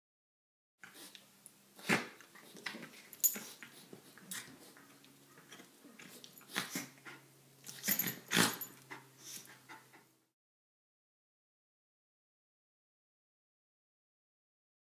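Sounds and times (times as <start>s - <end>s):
dogs play-fighting: 1.8s - 10.2s.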